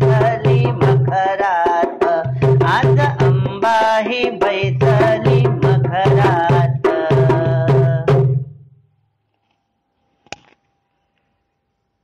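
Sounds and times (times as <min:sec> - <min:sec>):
woman singing: 0:00.0 - 0:08.3
tabla and drum: 0:00.0 - 0:08.7.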